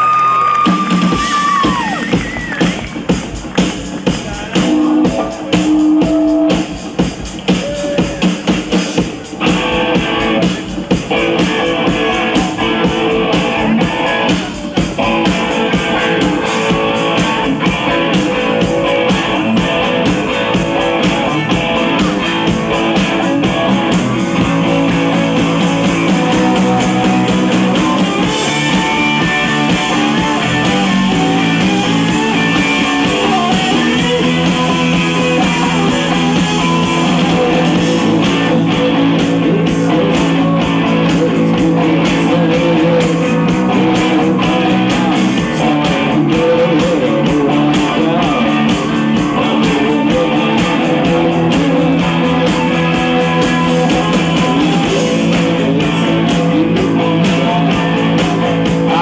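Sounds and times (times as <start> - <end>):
live rock band instrumental: 0.0 - 59.0.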